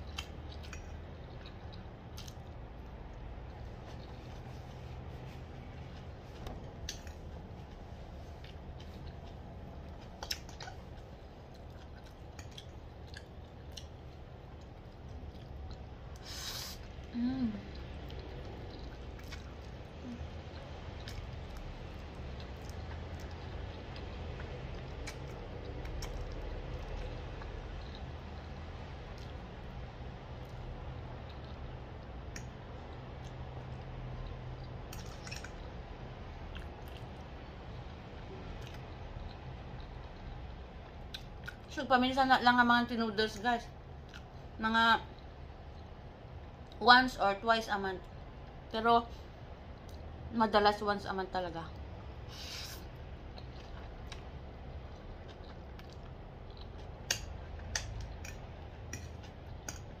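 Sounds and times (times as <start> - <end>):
soft chewing: 0.0 - 41.8, 43.2 - 46.8, 48.0 - 50.3, 51.7 - 60.0
steady low hum: 0.0 - 60.0
fork clicking and scraping on plate: 57.1 - 60.0.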